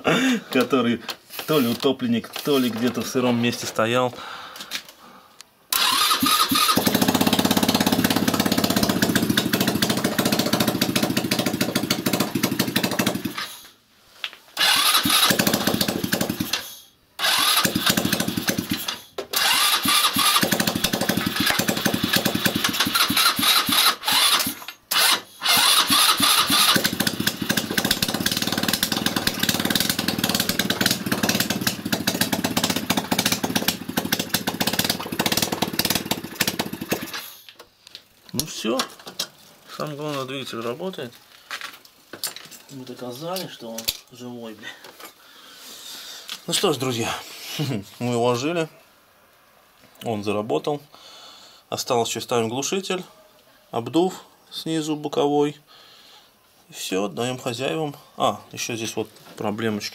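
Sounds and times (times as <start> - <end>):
scooter engine starting and stalling: 5.7 - 13.6, 14.6 - 37.5.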